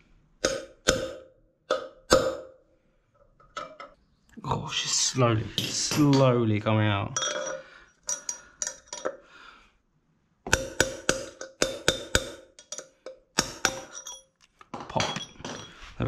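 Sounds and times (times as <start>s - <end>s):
hammer striking metal: 0.4s - 2.6s, 10.5s - 14.2s.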